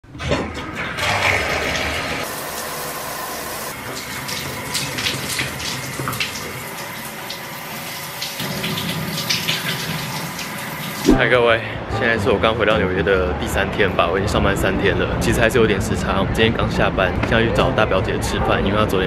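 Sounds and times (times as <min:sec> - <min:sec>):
shower water running: 0:00.8 - 0:11.1
water splashes and drips: 0:03.7 - 0:11.2.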